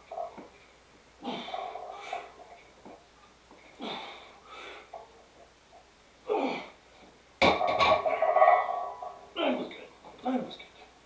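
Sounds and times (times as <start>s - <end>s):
strained grunt of effort: 1.2s - 2.3s, 6.2s - 6.8s
person breathing hard: 1.2s - 2.4s, 3.8s - 5.0s.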